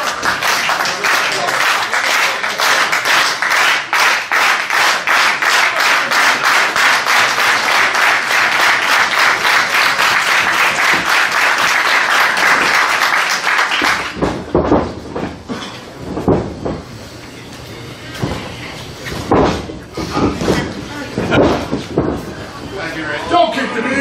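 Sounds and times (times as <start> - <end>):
crowd applauding: 0.0 - 14.2.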